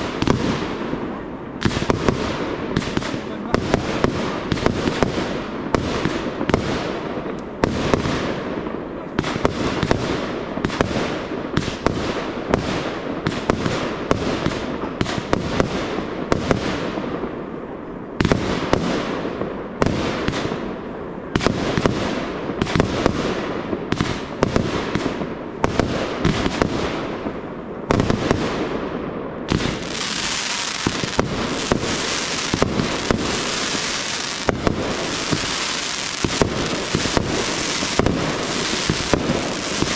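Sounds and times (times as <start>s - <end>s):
fireworks bursting with bangs: 0.0s - 39.9s
fireworks crackling hiss: 21.4s - 39.9s.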